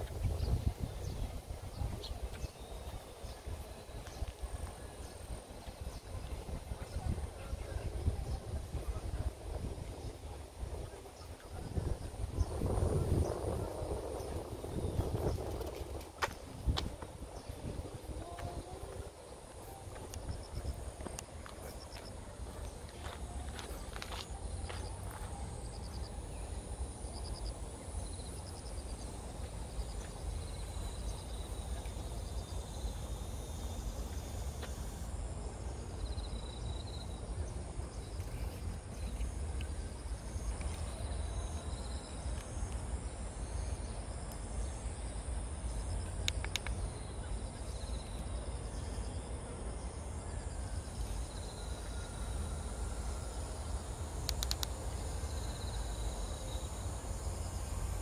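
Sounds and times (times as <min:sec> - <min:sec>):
wind rumble on microphone: 0:00.0 - 0:55.7
insects chirring: 0:17.4 - 0:58.0
short insect chirps: 0:37.9 - 0:49.2, 0:50.1 - 0:58.0
brief sharp clicks: 0:54.2 - 0:54.8.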